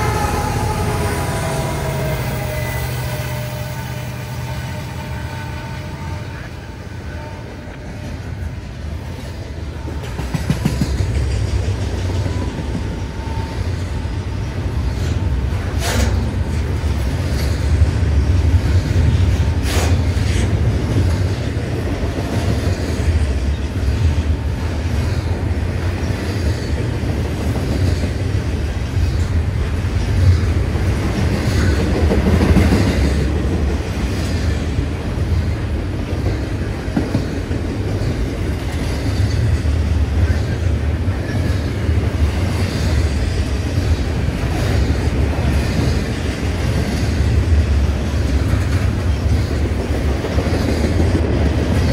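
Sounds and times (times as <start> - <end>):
freight train rumbling past: 0.0 - 51.9.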